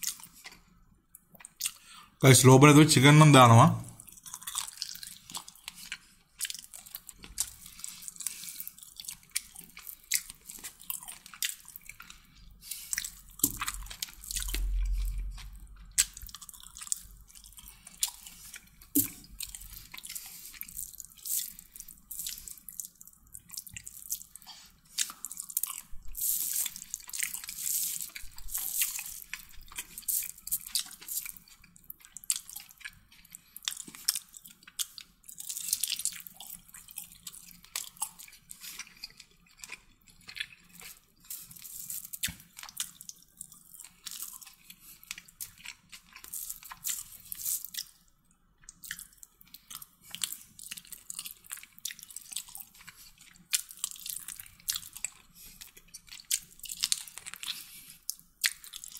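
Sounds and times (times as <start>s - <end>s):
wet chewing: 0.0s - 1.9s, 4.0s - 58.9s.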